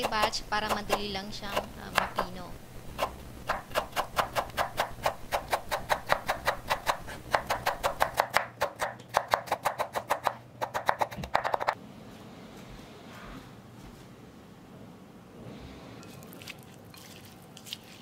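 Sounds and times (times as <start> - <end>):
knife chopping on wooden board: 0.0 - 2.3, 3.0 - 11.8.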